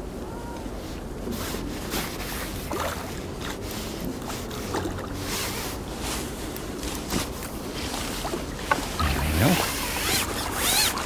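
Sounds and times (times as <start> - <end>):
fish splashing in water: 2.6 - 5.6, 7.2 - 11.0.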